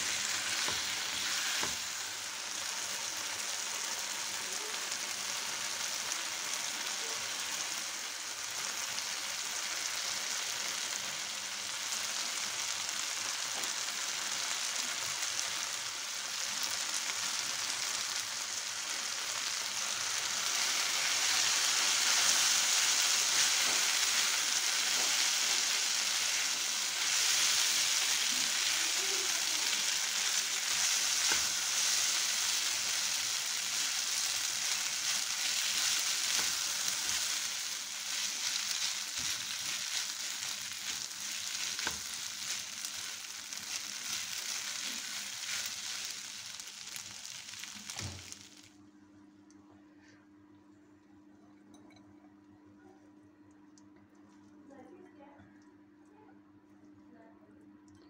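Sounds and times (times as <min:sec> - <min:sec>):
vegetables sizzling in a pan: 0:00.0 - 0:48.8
spatula stirring in a pan: 0:20.5 - 0:47.7.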